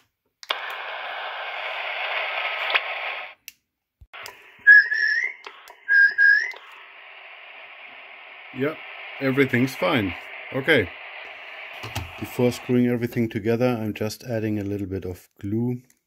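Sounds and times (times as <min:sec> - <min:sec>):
radio receiver hiss: 0:00.5 - 0:03.4, 0:04.2 - 0:13.9
short rising whistle tones: 0:04.6 - 0:06.6.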